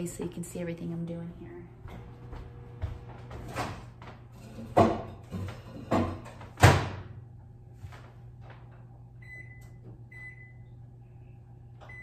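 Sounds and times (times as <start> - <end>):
steady low hum: 0.0 - 12.0
appliance control panel beeps: 9.2 - 10.8, 11.8 - 12.0.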